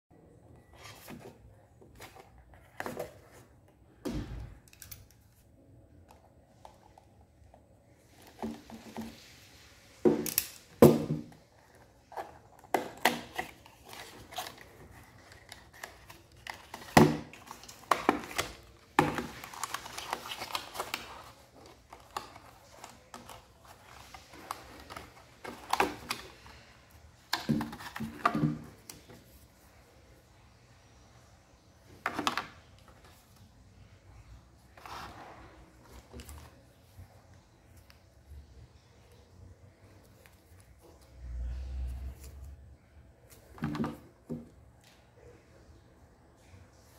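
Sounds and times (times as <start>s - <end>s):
paper and plastic rustling: 6.5s - 30.0s.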